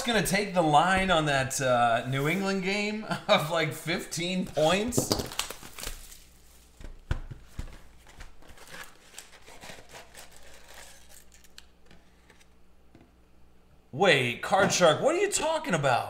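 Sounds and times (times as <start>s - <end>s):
packs rustling and crinkling: 4.5s - 11.5s
cardboard tearing: 4.6s - 6.4s, 8.0s - 11.6s.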